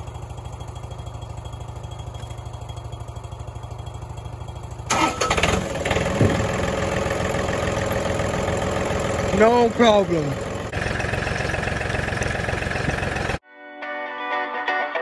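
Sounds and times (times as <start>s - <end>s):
tractor engine running: 0.0s - 13.4s
tractor engine cranking on starter: 3.8s - 13.4s.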